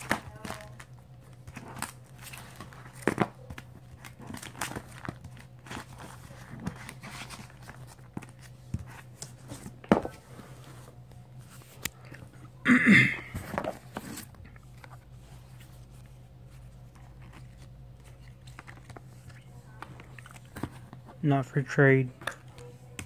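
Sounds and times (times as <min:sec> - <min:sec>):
plastic pages crinkling: 0:00.0 - 0:10.2, 0:13.3 - 0:21.1.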